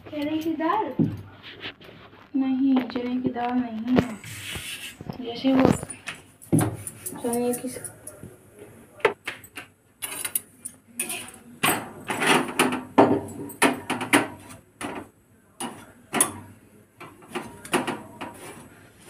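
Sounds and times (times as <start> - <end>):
metal tongs clinking on griddle: 6.8 - 8.2, 10.0 - 15.0.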